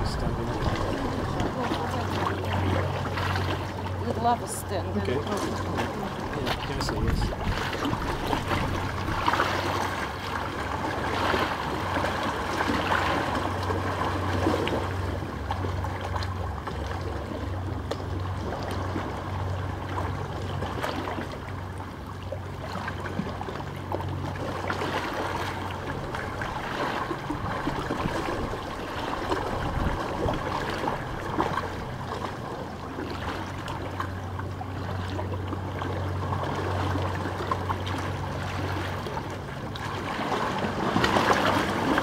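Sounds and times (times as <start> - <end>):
small waves lapping on stones: 0.0 - 14.9, 24.3 - 42.0
low steady hum: 0.0 - 42.0.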